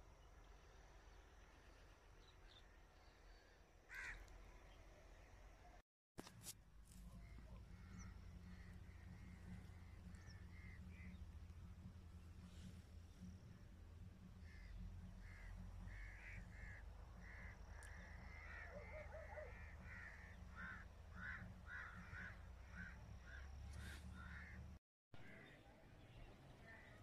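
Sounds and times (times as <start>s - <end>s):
faint crows cawing: 2.5s - 4.8s, 7.1s - 13.6s, 14.2s - 24.8s
low rumble: 6.7s - 18.8s.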